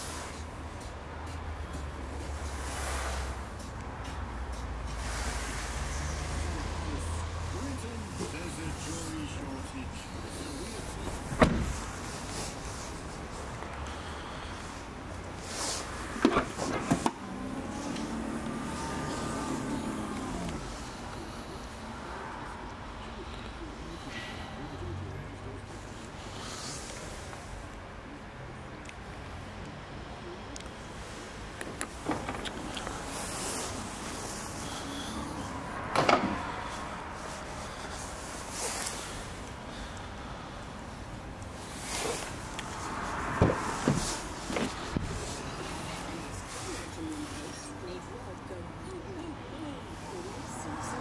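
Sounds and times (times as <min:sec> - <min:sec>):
tailgate latching knock: 0:11.3 - 0:11.8.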